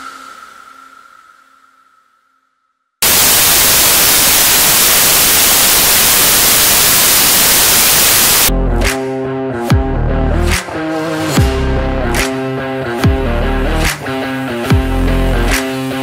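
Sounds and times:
white-noise static hiss: 3.0s - 8.5s
background music: 8.5s - 16.0s.

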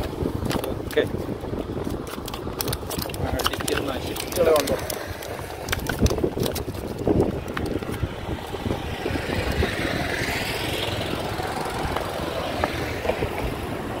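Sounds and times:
engine running: 4.4s - 14.0s.

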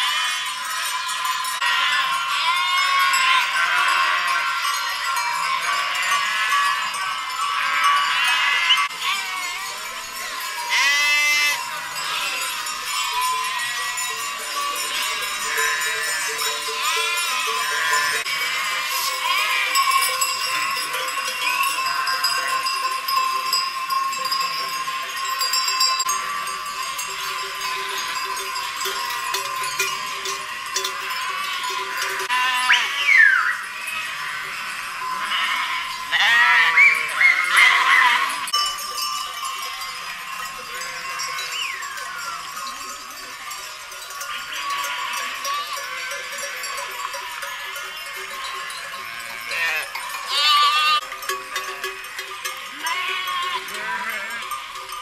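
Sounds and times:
sheep bleating: 0.0s - 0.5s, 1.6s - 4.6s, 5.5s - 6.9s, 7.5s - 9.7s, 10.7s - 14.0s, 14.9s - 20.0s, 31.3s - 38.6s, 48.9s - 51.0s, 52.7s - 54.6s
sheep bells clanking: 0.0s - 55.0s
loud wavering bleat: 10.7s - 12.4s, 32.2s - 33.4s, 35.2s - 38.5s, 49.2s - 51.0s.

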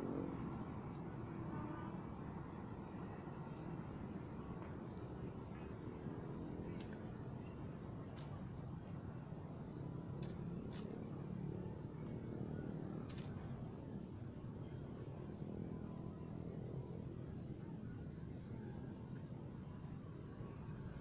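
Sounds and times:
insects chirring: 0.0s - 21.0s.

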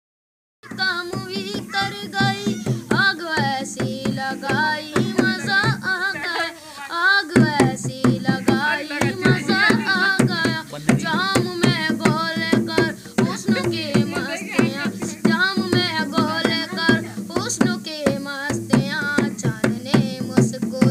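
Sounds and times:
children singing: 0.6s - 20.9s
hand drum beating: 0.7s - 20.9s.

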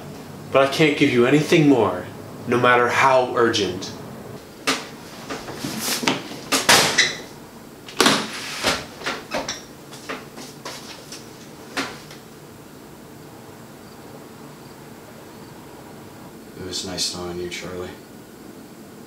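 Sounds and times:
faint room hum: 0.0s - 19.0s
things clattering on kitchen counter: 8.0s - 12.2s.

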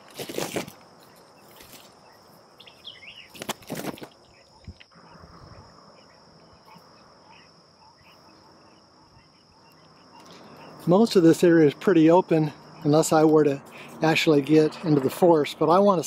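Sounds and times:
branches rustling: 0.0s - 5.0s
insect drone: 0.0s - 16.0s
small bird chirps: 1.0s - 3.4s, 4.1s - 10.9s.

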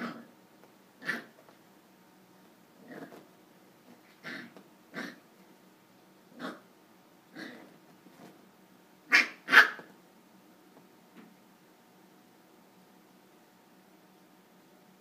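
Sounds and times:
puppy barking: 1.0s - 1.4s, 9.1s - 9.9s.

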